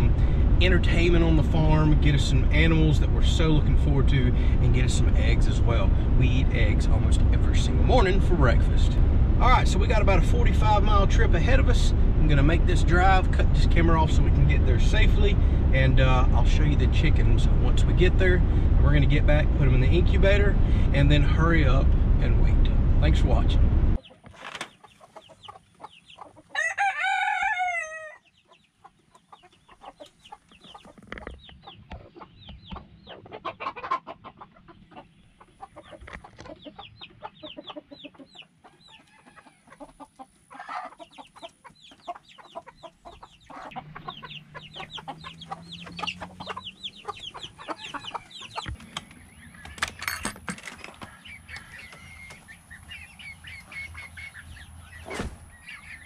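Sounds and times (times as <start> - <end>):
chickens clucking: 24.0 - 56.0
rooster crowing: 26.5 - 28.2.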